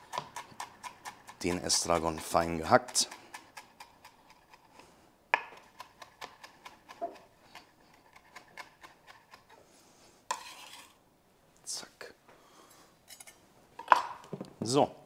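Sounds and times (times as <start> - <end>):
knife chopping on cutting board: 0.0 - 4.1, 5.4 - 9.5
knife rasp: 0.0 - 4.8, 5.6 - 9.6, 10.3 - 11.0.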